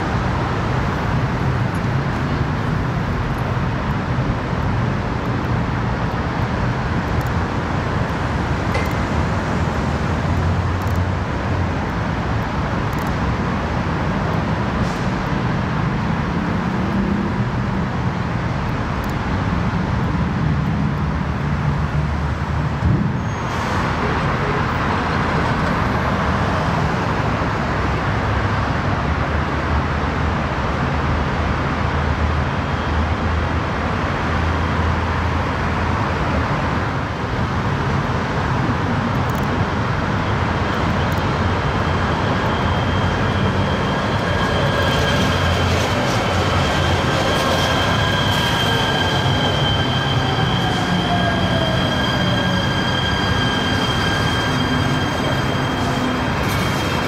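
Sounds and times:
train wheels rumbling on rail: 0.0s - 57.0s
high-pitched wheel squeal: 40.8s - 57.0s.

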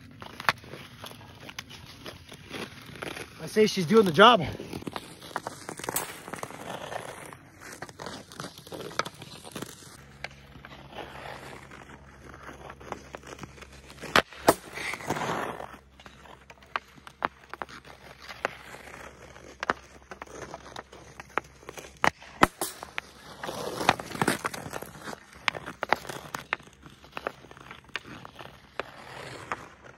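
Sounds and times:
skates scraping on ice: 0.0s - 29.9s
hockey stick clicking on puck: 4.6s - 10.4s, 11.4s - 29.9s
sharp hockey shots: 14.0s - 15.7s, 22.0s - 26.2s.

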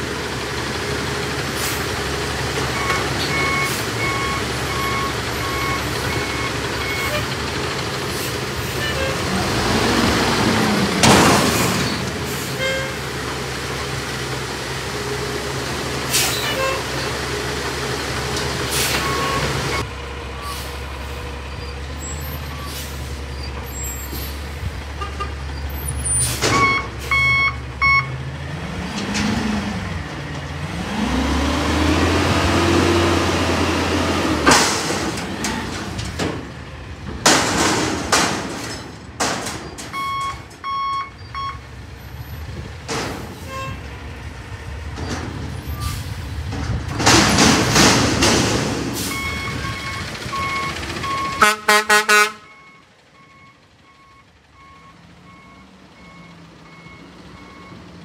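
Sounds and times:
garbage truck engine revving: 0.0s - 58.0s
reversing beeps: 2.8s - 7.2s, 19.0s - 20.5s, 26.5s - 28.2s, 39.9s - 41.6s, 49.1s - 51.4s, 52.5s - 57.8s
air brakes hissing: 16.0s - 16.8s, 18.7s - 19.2s, 20.4s - 21.2s, 22.1s - 24.4s.

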